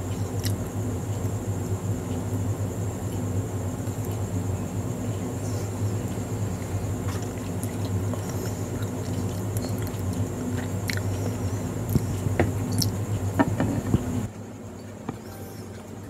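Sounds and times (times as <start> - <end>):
low hum: 0.0 - 16.0
person chewing with mouth closed: 7.0 - 13.0.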